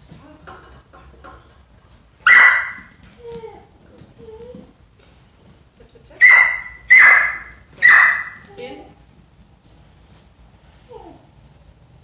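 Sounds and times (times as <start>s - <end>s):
dog whining: 1.1s - 5.5s, 9.6s - 11.3s
dog barking sharply: 2.2s - 2.9s, 6.2s - 8.4s.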